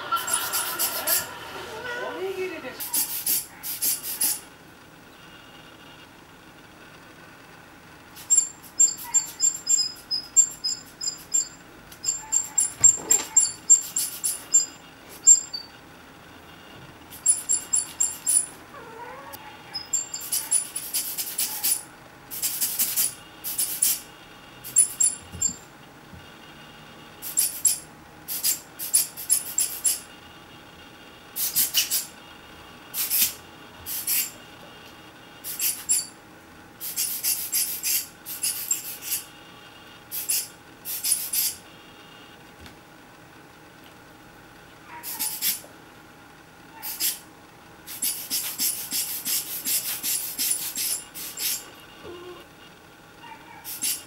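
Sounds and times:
air blower squeezed hissing: 0:02.8 - 0:04.4, 0:20.5 - 0:24.0, 0:27.2 - 0:30.0, 0:33.0 - 0:34.4, 0:35.4 - 0:36.0, 0:36.8 - 0:39.3, 0:45.2 - 0:45.6, 0:46.8 - 0:47.2, 0:47.9 - 0:51.7, 0:53.7 - 0:54.0.

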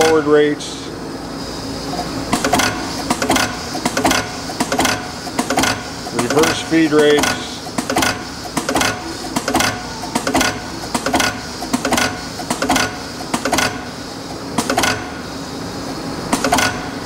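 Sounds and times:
drilling machine motor whirring: 0:00.0 - 0:17.0
sharp metallic clack: 0:02.3 - 0:13.9, 0:14.6 - 0:15.1, 0:16.3 - 0:17.0.

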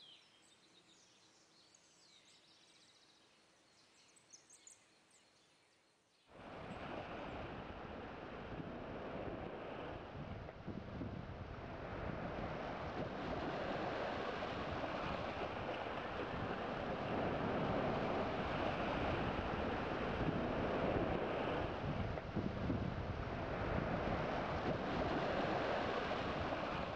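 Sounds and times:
wind on microphone: 0:06.4 - 0:26.9
sea waves breaking on rocks: 0:12.0 - 0:26.9.

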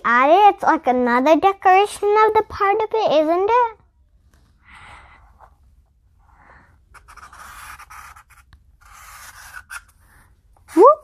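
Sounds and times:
felt-tip markers drawing on paper: 0:06.9 - 0:11.0.

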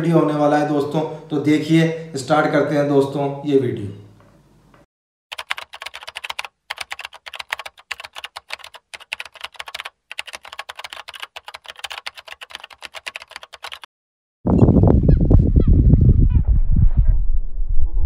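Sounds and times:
keyboard typing: 0:05.3 - 0:13.9.

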